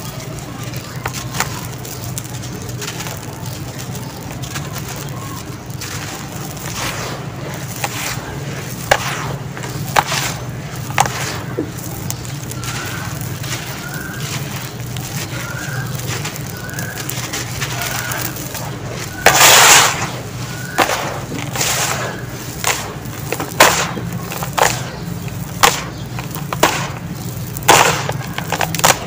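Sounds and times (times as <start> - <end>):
sand and cement crumbling between hands: 0.0 - 29.0.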